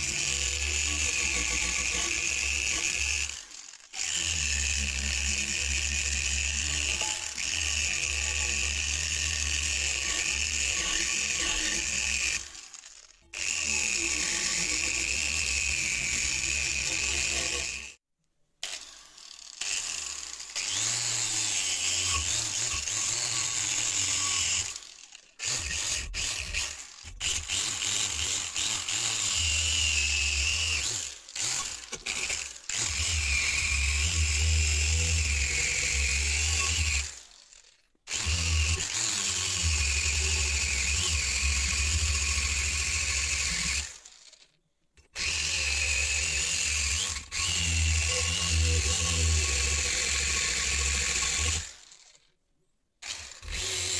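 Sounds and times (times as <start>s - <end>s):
angle grinder wire brush on steel: 0.0s - 18.0s.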